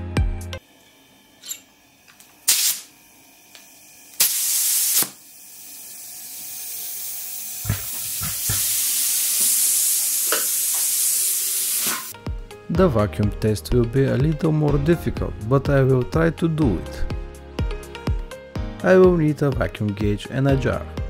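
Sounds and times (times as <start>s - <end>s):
compressed air hissing: 2.4s - 3.0s, 4.2s - 12.2s.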